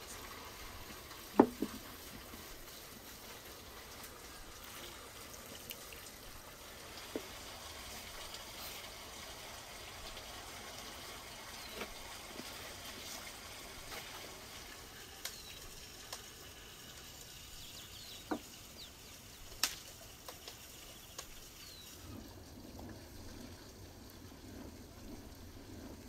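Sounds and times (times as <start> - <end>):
rush of running water: 0.0 - 26.0
small birds chirping: 15.2 - 15.8, 17.4 - 19.6, 20.7 - 22.0.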